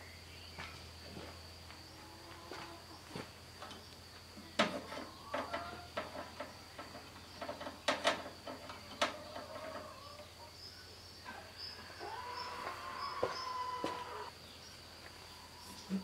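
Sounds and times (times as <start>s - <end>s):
thin steady squeak: 8.4s - 10.2s.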